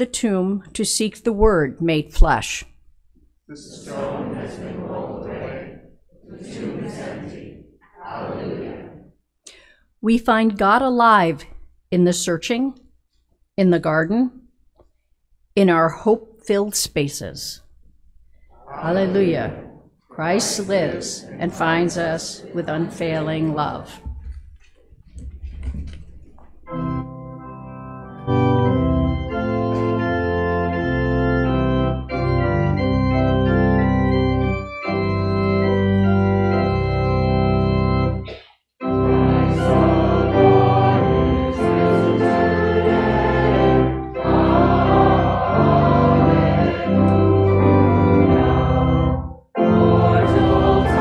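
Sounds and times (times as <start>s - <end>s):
church organ playing a hymn: 20.2s - 24.0s, 26.6s - 51.0s.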